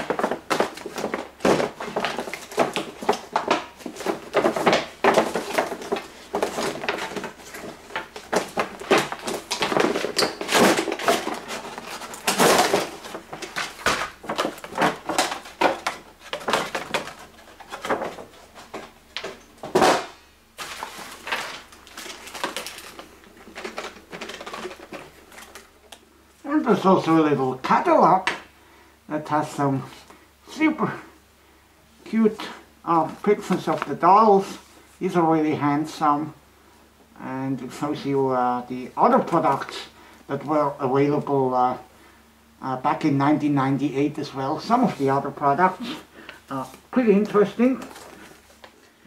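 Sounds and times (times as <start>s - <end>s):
loud packaging scrapes: 0.0s - 25.7s
toy packaging rustling: 0.0s - 26.1s, 44.8s - 49.0s.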